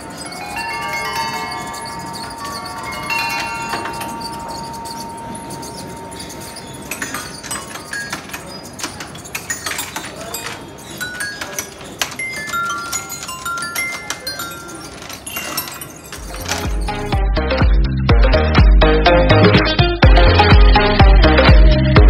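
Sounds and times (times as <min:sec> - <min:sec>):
xylophone notes: 0:00.0 - 0:06.2, 0:10.4 - 0:17.2
metal tube chimes ringing: 0:00.0 - 0:08.7.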